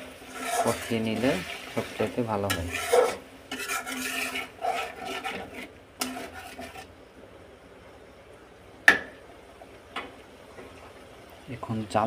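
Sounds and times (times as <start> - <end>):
metal spoon scraping a metal pan: 0.2 - 1.5, 2.4 - 6.9.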